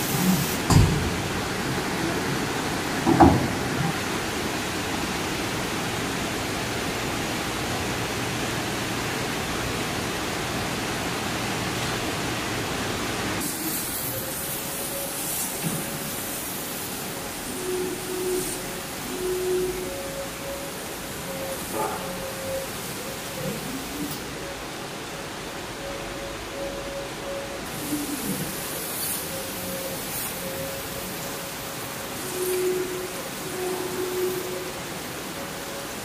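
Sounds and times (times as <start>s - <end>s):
laser cutter air rushing: 0.0s - 3.4s, 13.4s - 24.2s, 27.6s - 36.0s.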